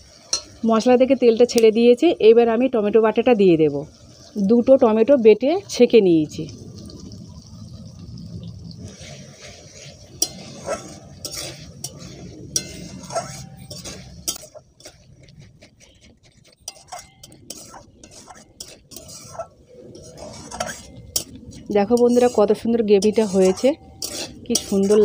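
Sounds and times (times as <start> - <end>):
spatula clinking against pan: 0.3 - 0.6, 16.6 - 19.4
metal spatula scraping pan: 8.9 - 25.0.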